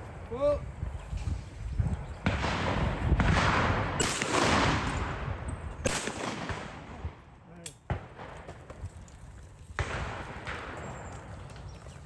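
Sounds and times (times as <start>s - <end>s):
shotgun firing: 2.2s - 5.2s, 5.8s - 7.2s.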